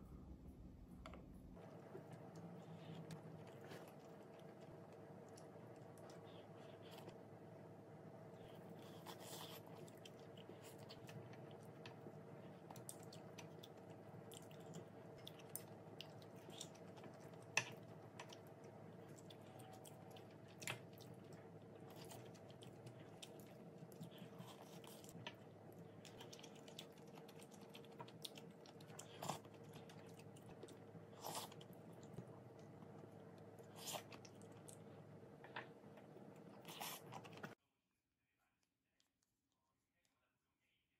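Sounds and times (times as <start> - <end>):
steady low hum: 0.0 - 37.6
quiet chewing: 1.0 - 37.6.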